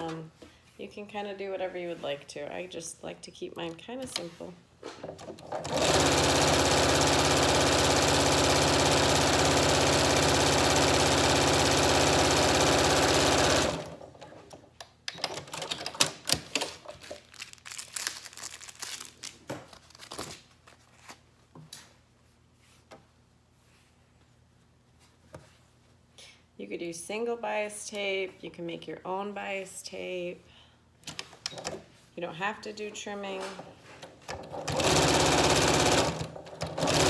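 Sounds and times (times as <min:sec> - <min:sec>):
electric sewing machine running: 0:05.6 - 0:14.0, 0:34.6 - 0:37.0.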